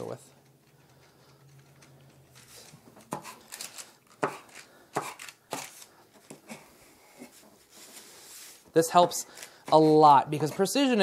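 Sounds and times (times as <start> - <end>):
metal scraper chopping butter: 9.7 - 11.0.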